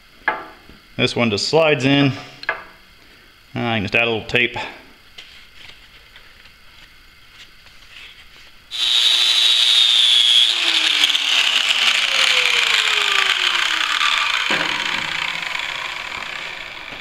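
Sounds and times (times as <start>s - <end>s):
angle grinder whining: 8.7s - 17.0s
sanding disc grinding on steel: 8.7s - 17.0s.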